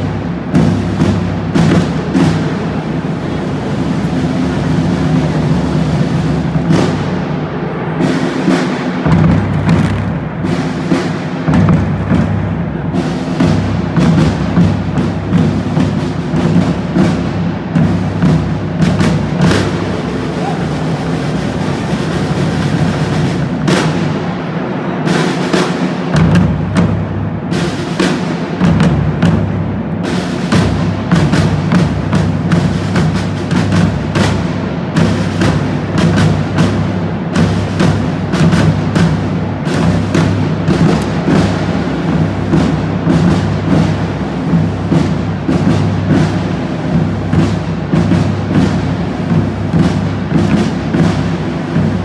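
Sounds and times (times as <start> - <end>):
drum roll: 0.0 - 52.0
loud accented drum strokes: 0.0 - 52.0.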